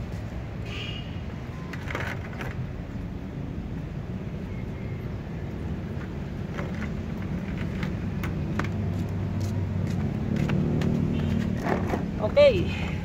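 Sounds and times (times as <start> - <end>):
vehicle engine rumble: 0.0 - 13.0
footsteps in slippers on concrete: 8.6 - 11.6.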